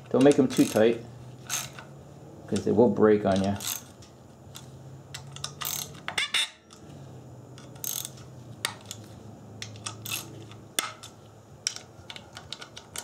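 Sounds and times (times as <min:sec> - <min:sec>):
ratchet clicking: 0:00.2 - 0:01.9, 0:03.3 - 0:06.8, 0:07.6 - 0:09.0, 0:09.6 - 0:13.0.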